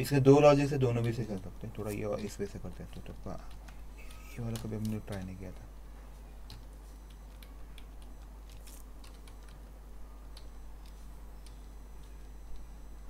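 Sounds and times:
keyboard keystrokes: 2.7 - 5.7, 6.4 - 9.6.

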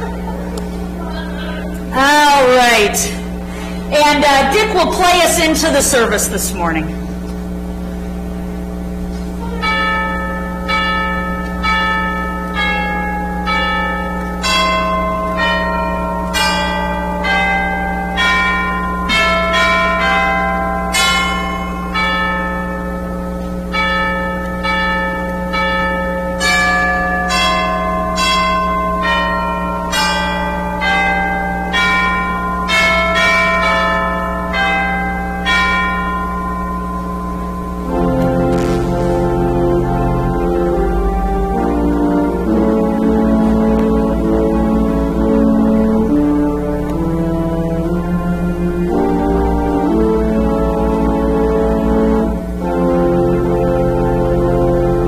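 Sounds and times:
chimes playing slow melody: 9.4 - 55.0
steady low tone: 33.6 - 55.0.

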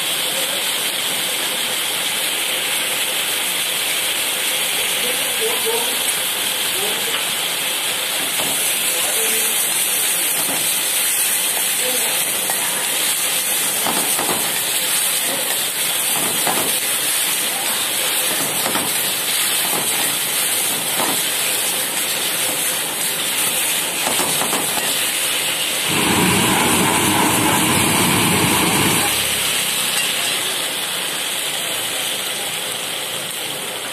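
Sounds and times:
food sizzling in a wok: 0.0 - 33.9
deep rushing noise: 25.8 - 29.9
metal spatula scraping wok: 25.9 - 30.3.

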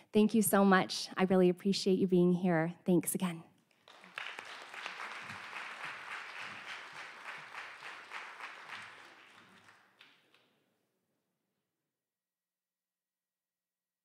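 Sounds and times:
audience applauding: 3.7 - 10.5.

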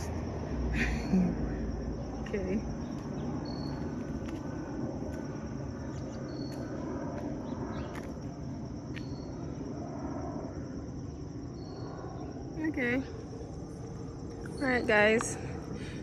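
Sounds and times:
high insect chirring: 0.0 - 16.0
low background hum: 0.0 - 16.0.

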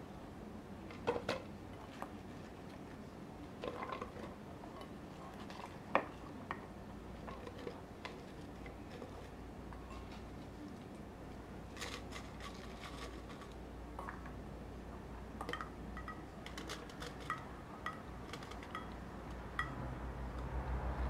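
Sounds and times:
utensils and dishes clicking: 15.5 - 19.0.

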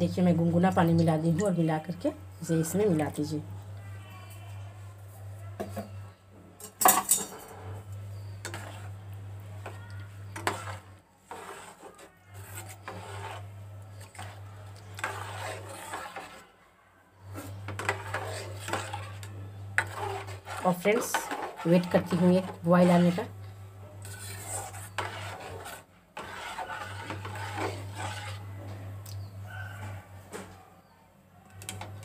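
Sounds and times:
metal spoon scraping pan: 6.6 - 16.4, 17.3 - 28.5.

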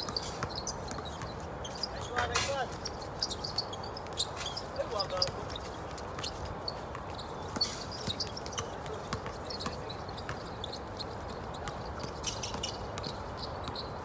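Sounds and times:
steady background noise: 0.0 - 14.0
basketball bouncing on court: 6.9 - 13.9.

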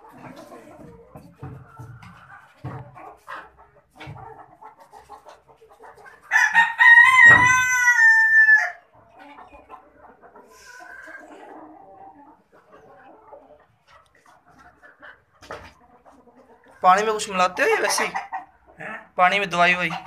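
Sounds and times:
chickens clucking: 0.0 - 20.0
rooster crowing: 6.3 - 8.8.

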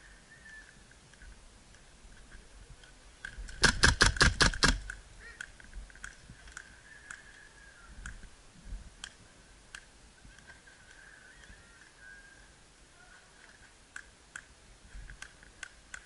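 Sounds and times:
suppressed airsoft gun shots: 3.6 - 4.9
faint clicks: 9.0 - 12.0, 13.4 - 16.0.

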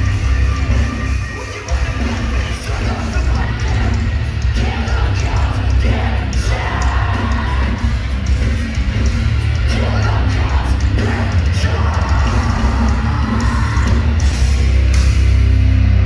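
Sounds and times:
crowd shouting: 0.0 - 8.6, 9.6 - 14.6
metalcore band playing live: 0.0 - 16.0
person singing: 9.7 - 14.4.

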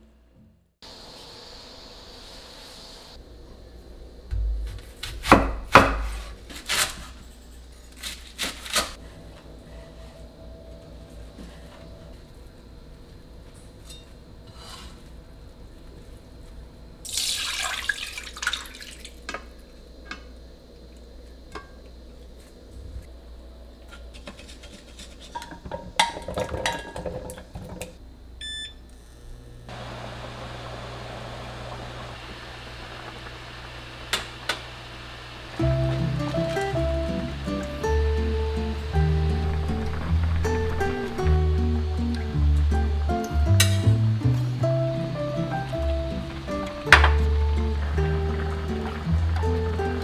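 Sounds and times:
cooktop fan hum: 0.8 - 50.0
short electronic beep: 28.4 - 28.8.

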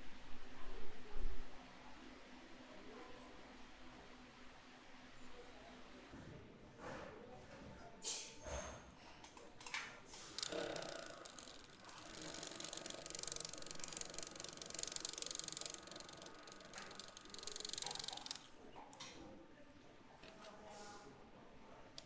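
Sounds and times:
fine rattling hiss: 10.2 - 18.5.

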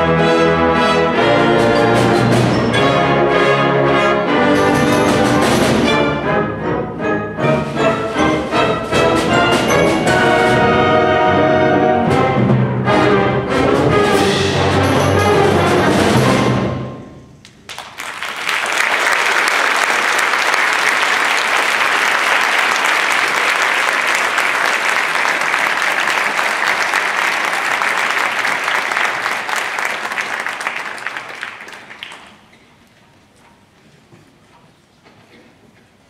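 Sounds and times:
audience applauding: 17.4 - 32.6.

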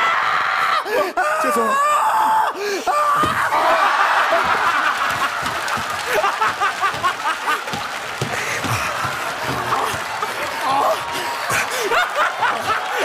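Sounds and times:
audience laughing and shrieking: 2.8 - 13.0
audience clapping: 3.4 - 13.0.

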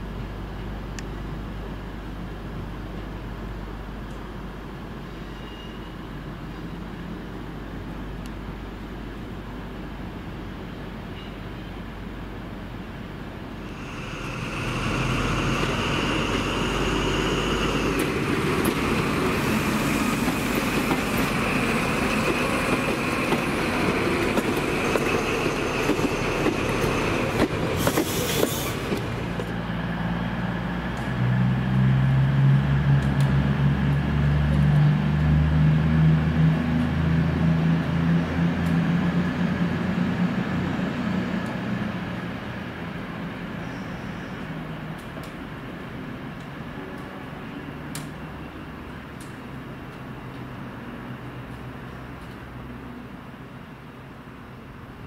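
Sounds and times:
passing train whine: 0.0 - 55.0
diesel engines droning: 13.3 - 55.0.

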